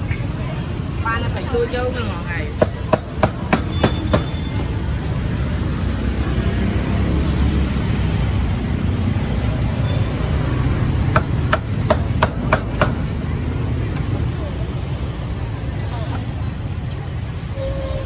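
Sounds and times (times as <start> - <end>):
background chatter: 0.0 - 6.2, 11.7 - 18.0
street traffic rumble: 0.0 - 18.0.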